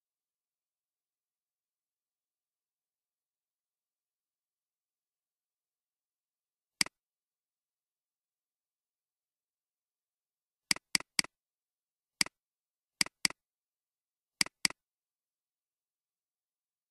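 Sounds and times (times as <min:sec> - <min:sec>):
mouse button clicking: 0:10.7 - 0:11.3, 0:13.0 - 0:13.4, 0:14.4 - 0:14.8.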